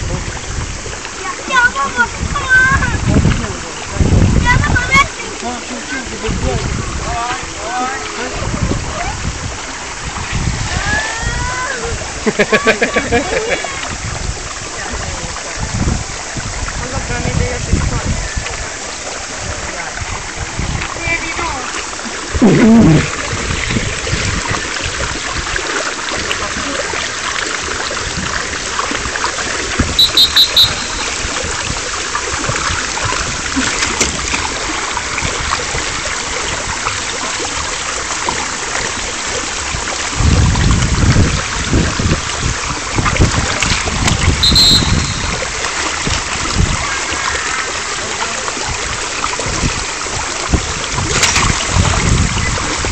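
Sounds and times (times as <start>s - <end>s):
water rushing down a slide: 0.0s - 52.9s
wind buffeting microphone: 0.0s - 52.9s
whistle short high blasts: 30.0s - 31.4s, 44.4s - 45.6s.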